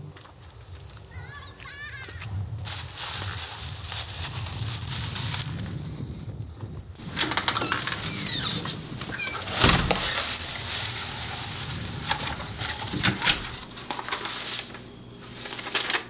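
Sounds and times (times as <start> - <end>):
door thud: 9.0 - 10.6.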